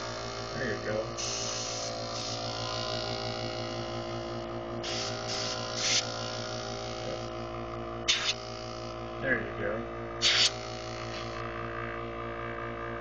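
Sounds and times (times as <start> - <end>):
airbrush air blasts hissing: 0.0 - 7.3, 8.0 - 9.0, 10.2 - 11.4
air compressor humming: 0.0 - 13.0.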